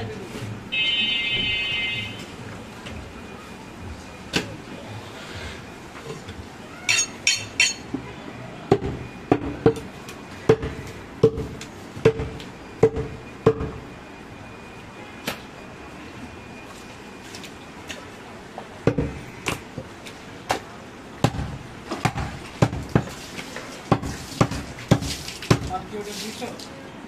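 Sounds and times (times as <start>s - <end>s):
cleaver chopping meat on wood: 10.5s - 13.7s, 21.2s - 23.1s, 23.9s - 25.8s.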